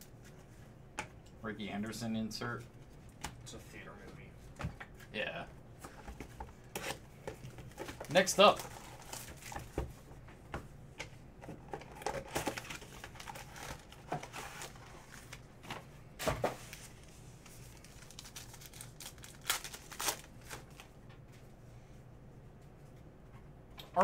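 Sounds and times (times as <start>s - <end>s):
card packs crinkling and rustling: 5.0s - 9.9s, 11.6s - 21.0s
pack wrapper ripping: 17.7s - 20.9s.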